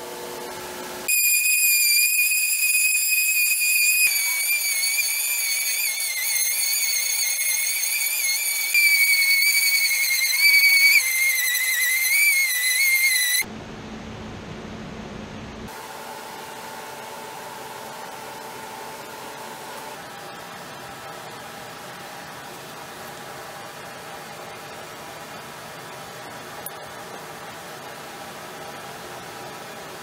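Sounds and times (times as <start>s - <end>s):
orbital sander whining: 1.1s - 13.5s.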